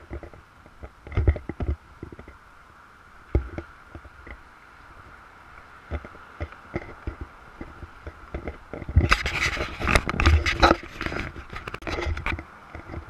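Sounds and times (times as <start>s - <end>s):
scraping and rubbing: 5.9s - 13.0s.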